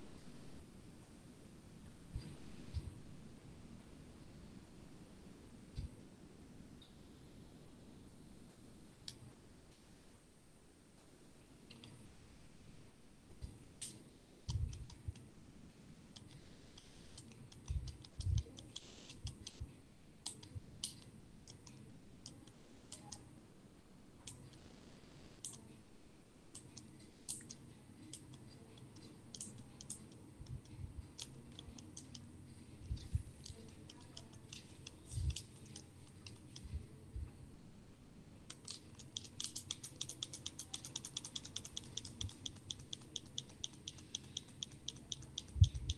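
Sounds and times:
faint irregular clicking: 0:09.0 - 0:09.8, 0:11.0 - 0:12.2, 0:13.4 - 0:15.3, 0:16.1 - 0:23.3, 0:25.4 - 0:25.8, 0:26.5 - 0:37.4, 0:38.4 - 0:45.9.

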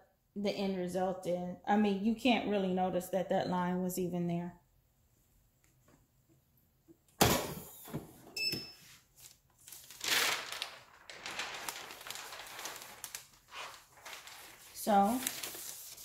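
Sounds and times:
paper rustling: 0:08.8 - 0:16.0.

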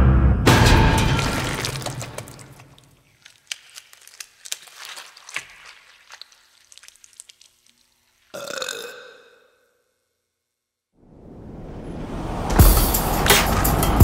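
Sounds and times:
sudden pitched hit: 0:00.0 - 0:02.2
wet clicks and squelches: 0:02.1 - 0:08.3.

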